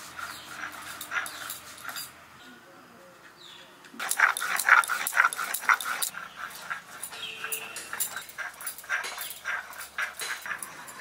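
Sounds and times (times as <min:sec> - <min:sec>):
stone roller scraping grinding stone: 0:00.0 - 0:02.1, 0:04.0 - 0:11.0.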